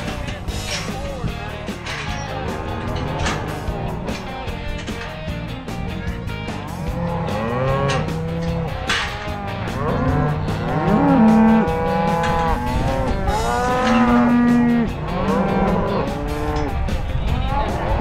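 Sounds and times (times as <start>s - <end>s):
cattle mooing and bawling: 2.2s - 4.5s, 6.7s - 16.8s.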